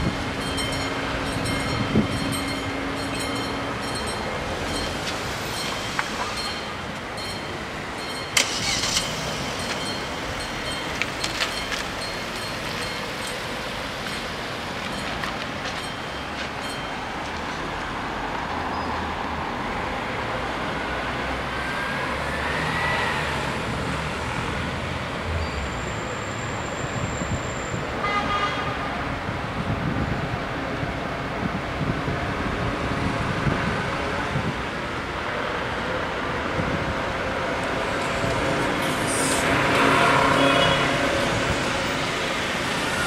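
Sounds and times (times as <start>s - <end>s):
street traffic noise: 0.0s - 43.0s
level crossing bells ringing: 0.4s - 17.4s.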